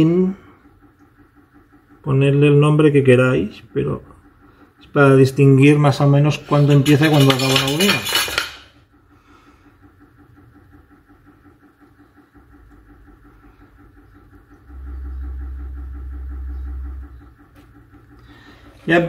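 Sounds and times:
faint electrical hum: 11.9s - 19.0s.

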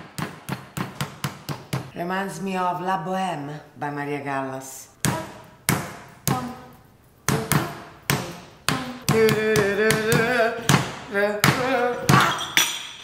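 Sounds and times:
operatic singing with vibrato: 4.6s - 13.0s.

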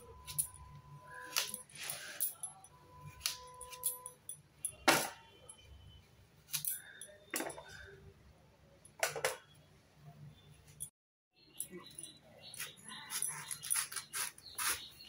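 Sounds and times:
knife slicing root: 13.7s - 14.9s.

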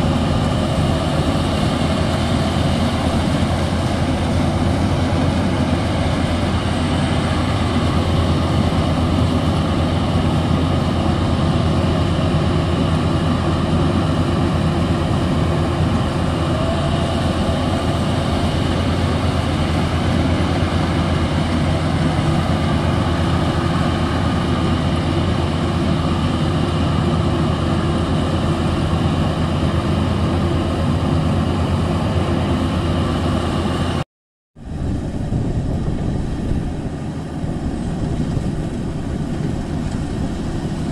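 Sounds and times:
combine harvester engine droning: 0.0s - 34.0s, 34.6s - 40.9s.

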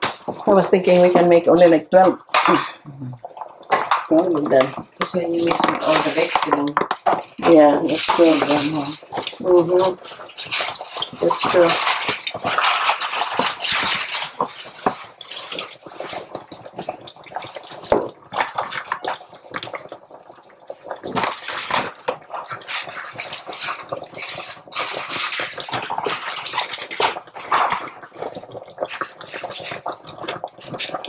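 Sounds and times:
utensil clinking on pot: 7.5s - 16.0s.

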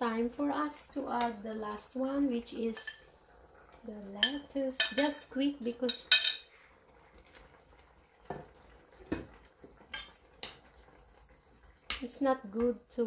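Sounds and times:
kitchen dishes knocking and clinking: 5.8s - 6.5s, 9.1s - 9.3s.

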